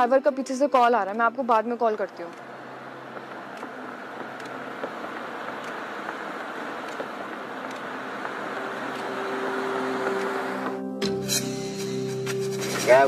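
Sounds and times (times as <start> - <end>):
car approaching: 1.2 - 11.0.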